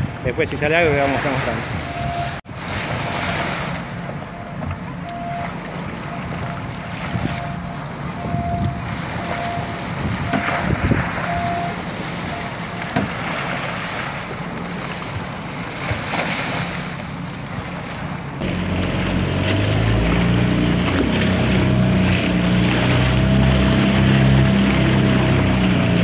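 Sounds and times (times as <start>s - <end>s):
wind on microphone: 0.0s - 0.4s, 7.0s - 7.6s, 8.2s - 11.7s
outboard motor running: 0.0s - 26.0s
waves lapping: 0.0s - 26.0s.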